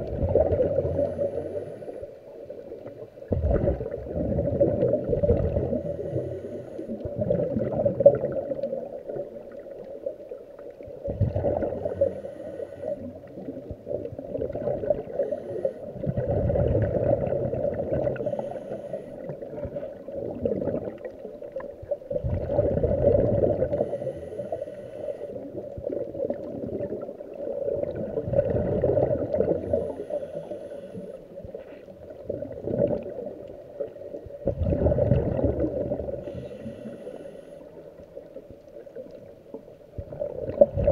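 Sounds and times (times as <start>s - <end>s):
bubbles gurgling underwater: 0.0s - 1.4s, 2.4s - 12.2s, 12.9s - 18.6s, 19.2s - 24.5s, 25.4s - 30.0s, 31.4s - 36.7s, 37.7s - 40.9s
diver breathing through regulator: 0.7s - 2.2s, 5.6s - 7.1s, 11.6s - 13.4s, 15.0s - 16.5s, 18.1s - 19.6s, 23.4s - 25.6s, 29.5s - 31.9s, 36.1s - 38.0s.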